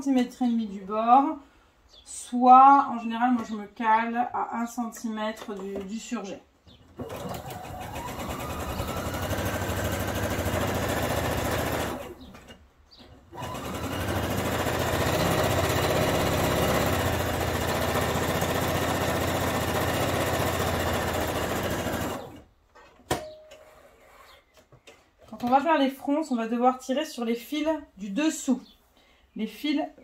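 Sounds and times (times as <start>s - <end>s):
sewing machine stitching: 7.0s - 12.4s, 13.3s - 22.5s.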